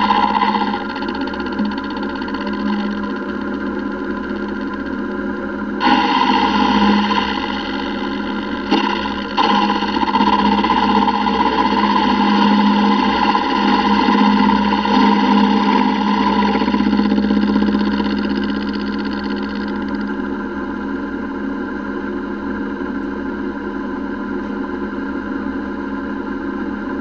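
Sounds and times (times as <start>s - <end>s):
ringing tone of metal cutting: 0.0s - 20.2s
milling machine hum: 0.0s - 20.5s.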